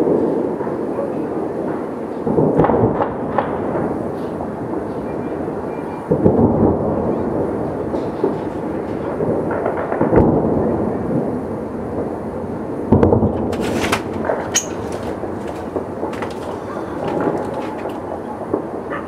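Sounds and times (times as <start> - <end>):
fireworks booming and crackling: 0.0 - 19.0
sharp firework cracks: 13.0 - 18.8.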